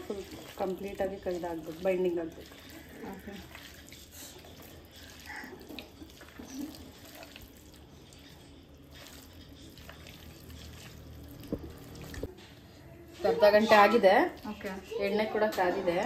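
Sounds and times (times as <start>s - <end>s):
wet squelching of kneaded meat: 0.0s - 12.3s.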